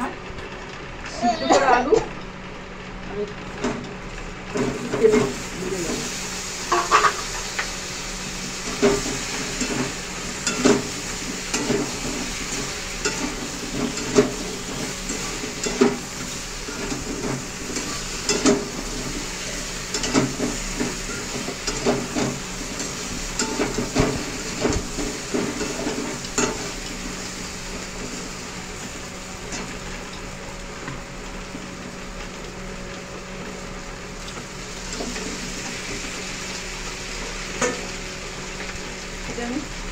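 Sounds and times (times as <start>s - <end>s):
potatoes sizzling in oil: 4.5s - 39.9s
metal spatula scraping pan: 6.7s - 7.4s.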